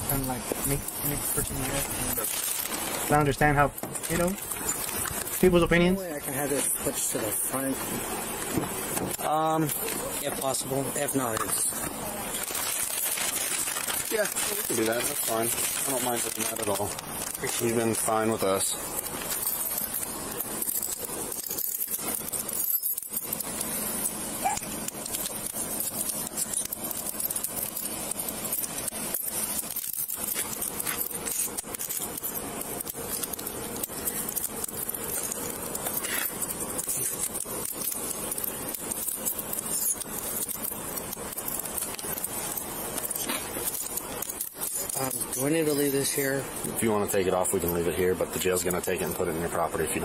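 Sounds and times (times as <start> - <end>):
keys and metal gear jangling: 17.4 - 46.7.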